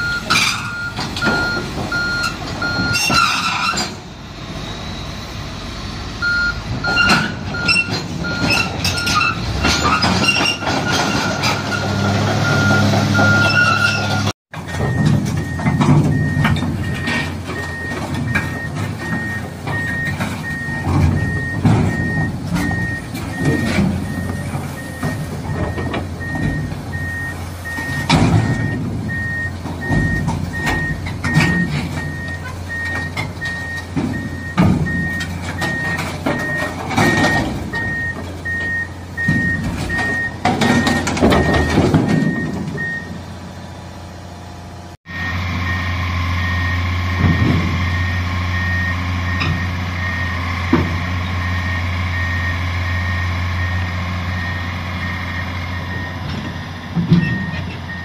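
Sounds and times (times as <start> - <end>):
diesel engine running: 0.0 - 58.0
travel alarm beeping: 6.2 - 9.1, 14.9 - 43.1, 47.9 - 50.4, 51.4 - 56.2.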